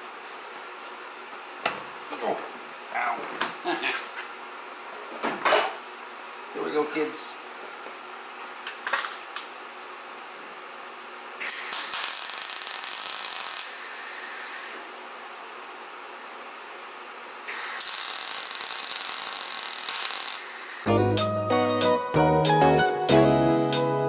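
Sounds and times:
welder crackling hiss: 11.4s - 14.9s, 17.5s - 20.9s.

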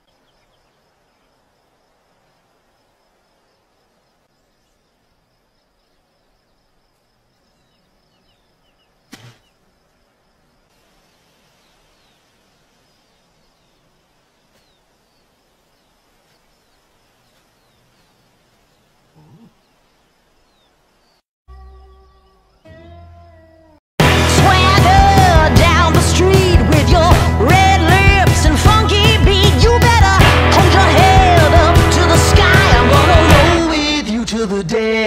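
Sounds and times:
small birds chirping: 0.0s - 1.9s, 2.7s - 22.8s
soft hiss: 9.1s - 21.2s.

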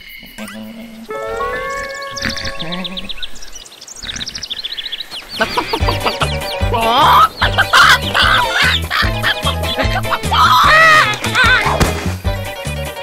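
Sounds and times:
small birds chirping: 0.0s - 11.8s
chicks peeping: 0.2s - 11.8s
hen clucking: 0.2s - 11.8s
rooster crowing: 1.1s - 3.1s, 5.4s - 11.2s.

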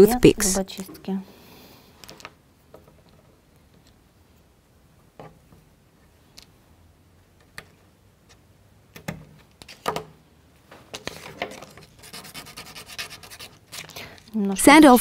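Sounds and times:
scratching and rustling: 10.7s - 14.3s.

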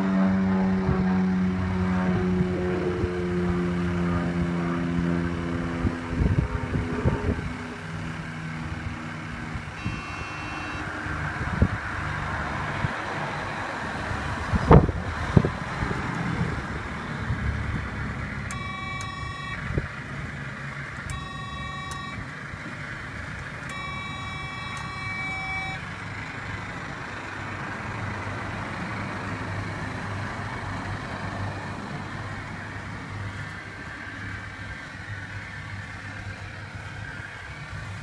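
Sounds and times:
electronic horn toots: 9.8s - 11.2s, 18.5s - 19.8s, 21.1s - 22.2s, 23.6s - 25.9s.

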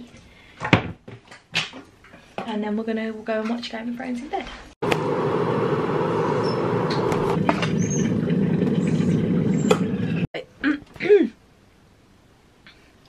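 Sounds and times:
electric kettle rumbling: 4.8s - 10.3s.

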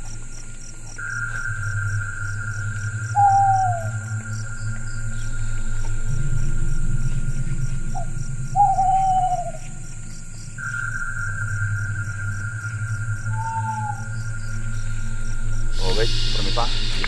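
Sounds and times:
insect chirping: 0.0s - 17.0s
steady drone: 1.0s - 17.0s
falling hoot-like call: 1.3s - 9.9s, 10.6s - 14.7s.

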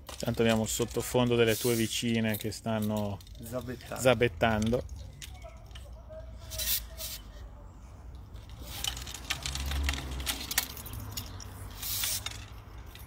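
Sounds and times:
fishing pole sections clicking: 8.1s - 13.0s.

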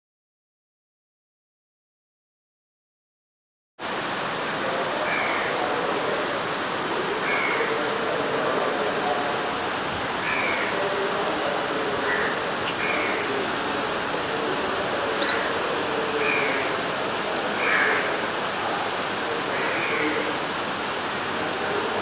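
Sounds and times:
floodwater flowing: 3.8s - 22.0s
heavy rain: 3.8s - 22.0s
bird calls: 10.0s - 10.8s, 11.7s - 16.8s.

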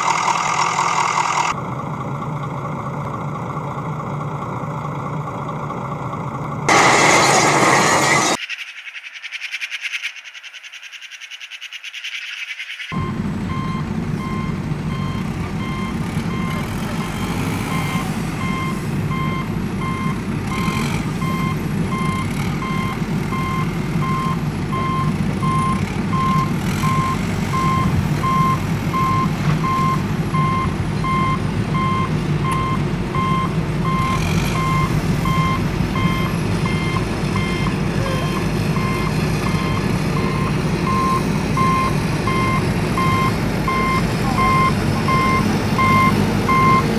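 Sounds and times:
truck reversing alarm beeping: 0.0s - 1.6s, 6.6s - 8.4s, 12.9s - 46.9s
low engine running: 0.0s - 8.4s, 13.0s - 46.9s.

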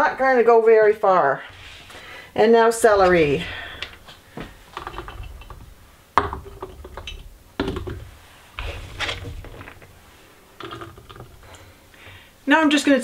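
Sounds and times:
knocks on plastic funnel: 4.4s - 9.9s.

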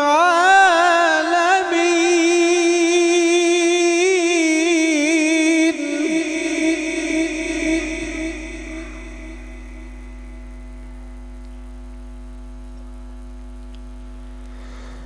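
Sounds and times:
person reciting with echo: 0.0s - 11.0s
electrical mains hum: 0.0s - 15.0s.

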